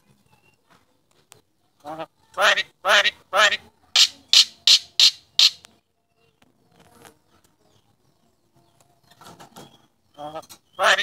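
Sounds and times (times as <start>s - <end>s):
myna squawking: 4.0s - 5.6s.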